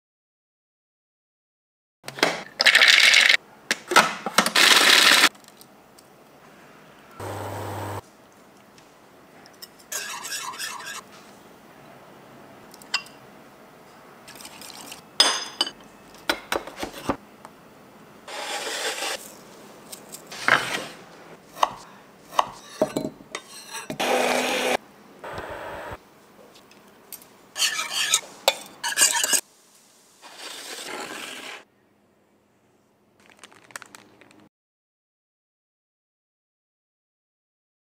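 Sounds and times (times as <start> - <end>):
immersion blender running: 7.2 - 8.0, 24.0 - 26.0
utensils clinking and scraping dishes: 27.6 - 29.4.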